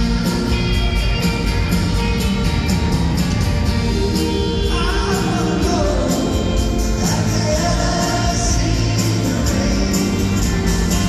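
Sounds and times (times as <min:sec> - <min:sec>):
live rock band playing: 0:00.0 - 0:11.0
man singing lead: 0:03.8 - 0:11.0.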